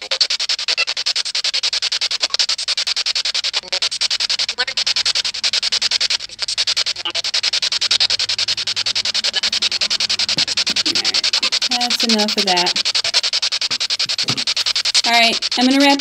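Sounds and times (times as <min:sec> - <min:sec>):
chopped radio static: 0:00.0 - 0:16.0
snatches of broadcast voice: 0:03.7 - 0:16.0.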